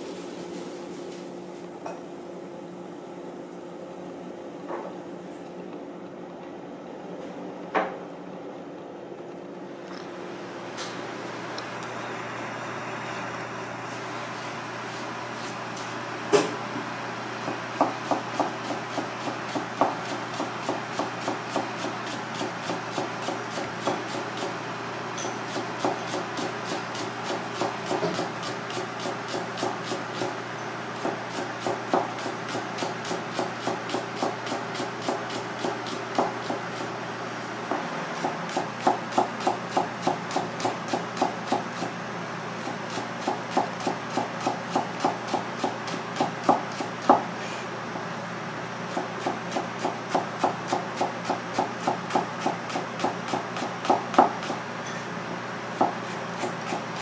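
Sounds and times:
knife chopping on cutting board: 17.4s - 24.5s, 25.5s - 30.4s, 31.0s - 36.9s, 37.7s - 41.9s, 42.6s - 47.3s, 48.9s - 54.6s, 55.7s - 57.0s.

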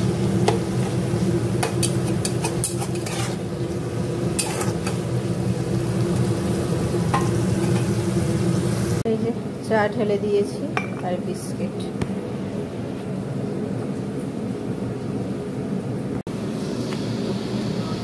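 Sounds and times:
food sizzling in oil: 0.0s - 9.1s
metal spatula scraping a pan: 1.6s - 5.1s.

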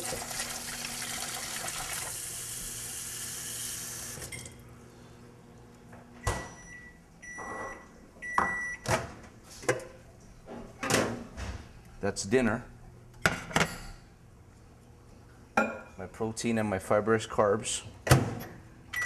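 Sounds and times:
faucet running water into bowl: 0.0s - 4.3s
microwave oven humming: 0.0s - 15.9s
microwave beeps: 6.2s - 8.9s.

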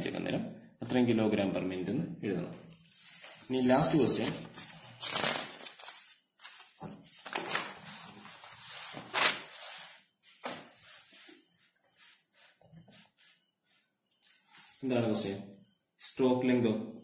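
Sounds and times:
paper pages rustling: 2.7s - 11.4s.

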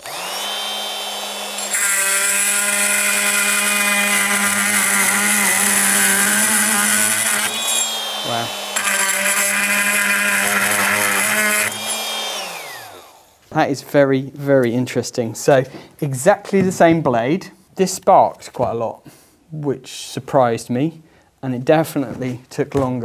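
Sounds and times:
motor winding down: 0.0s - 13.3s
multi-tool grinding metal: 0.0s - 13.4s.

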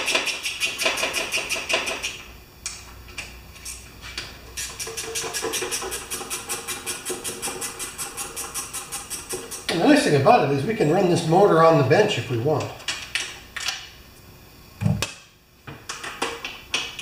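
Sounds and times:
ratchet wrench clicking: 4.6s - 9.7s.

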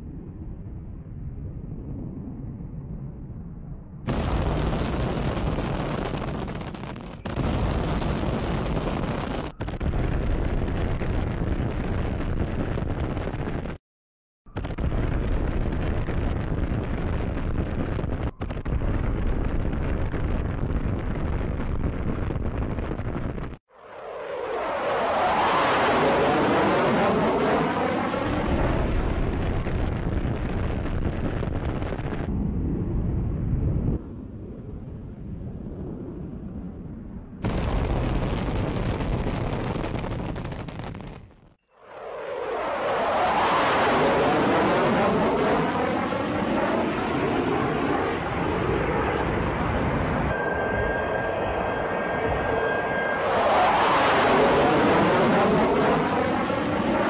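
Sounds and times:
bomb explosions rumbling: 0.0s - 13.8s, 28.1s - 57.0s
jet passing with whoosh: 41.8s - 57.0s.

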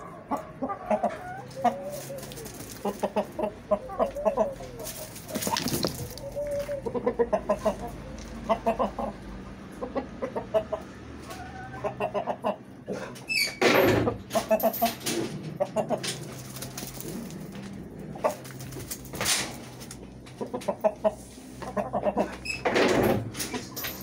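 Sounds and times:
chickens clucking and squawking: 0.0s - 24.0s
flapping wings and scuffling: 1.6s - 3.4s, 4.5s - 6.8s, 14.4s - 20.4s.

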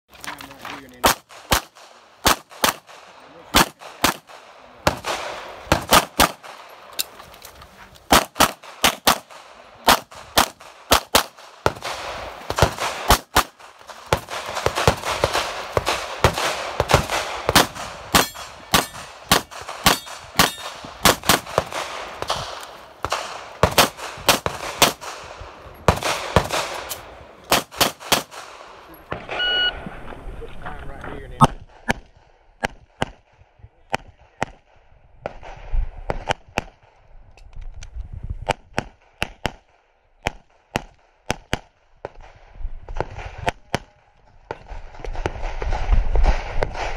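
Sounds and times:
pistol shots: 1.0s - 7.0s, 8.1s - 29.4s
shot timer beep: 29.3s - 29.8s.

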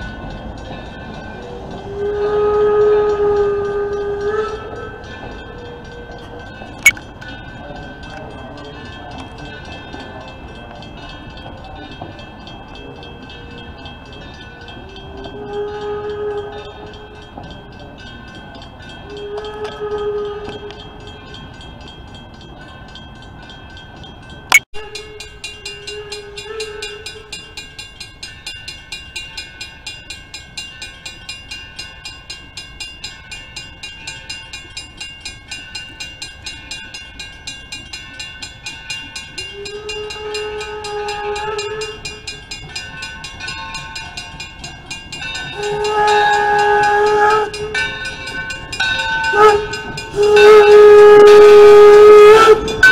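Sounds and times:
crossing bell ringing: 0.0s - 52.9s
steam locomotive whistle: 1.4s - 6.4s, 14.8s - 17.2s, 19.0s - 21.1s, 24.8s - 27.6s, 39.4s - 42.6s, 45.4s - 52.9s.

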